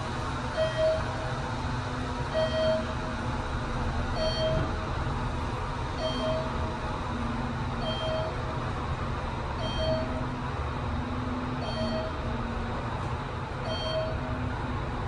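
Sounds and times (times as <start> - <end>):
elevator car rumbling: 0.0 - 15.0
short electronic beep: 13.7 - 14.2.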